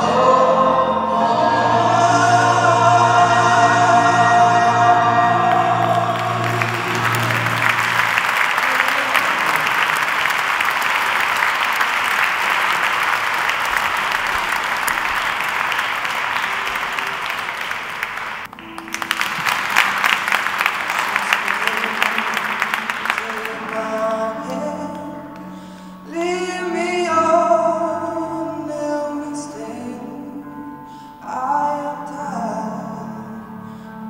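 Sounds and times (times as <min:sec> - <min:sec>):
singers and band held chord: 0:00.0 - 0:34.0
audience applauding: 0:05.0 - 0:25.1.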